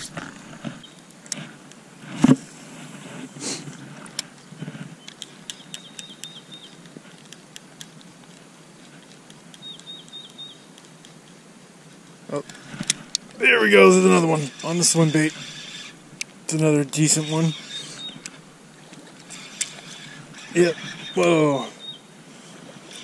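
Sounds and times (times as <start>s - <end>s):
bird chirping: 5.0s - 6.8s, 9.5s - 10.7s, 17.0s - 18.5s, 19.3s - 23.0s
reel clicking: 12.4s - 21.4s, 22.5s - 23.0s.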